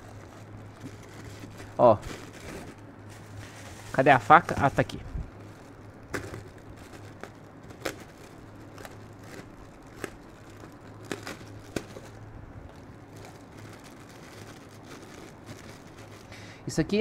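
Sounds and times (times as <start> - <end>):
plastic bag crinkling: 0.0 - 16.5
faint low hum: 0.0 - 17.0.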